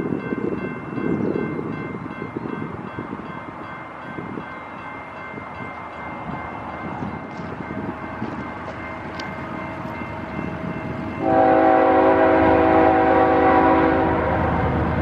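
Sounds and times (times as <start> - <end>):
diesel locomotive engine rumble: 0.0 - 15.0.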